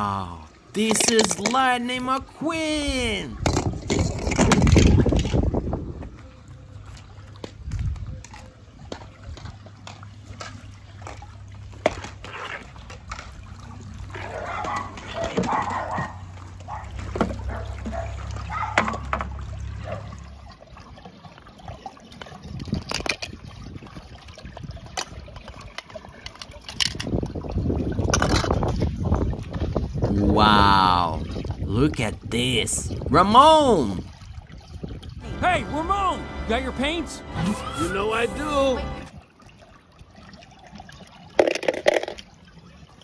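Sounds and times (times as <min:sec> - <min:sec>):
pool water sloshing and splashing: 0:00.0 - 0:43.0
low steady hum: 0:35.2 - 0:39.2.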